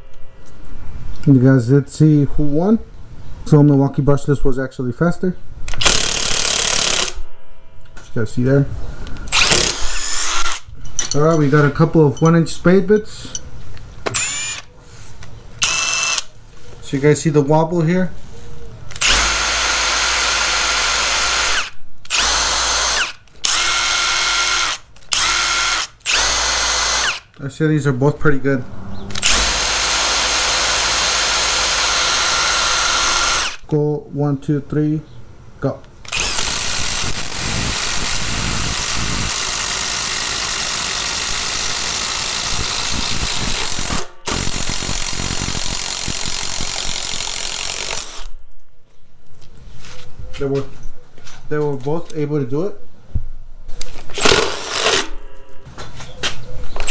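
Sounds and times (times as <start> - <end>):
impact driver motor whine: 9.3 - 10.6, 15.6 - 16.3, 19.0 - 27.2, 29.1 - 33.6, 36.1 - 48.3, 54.1 - 55.1.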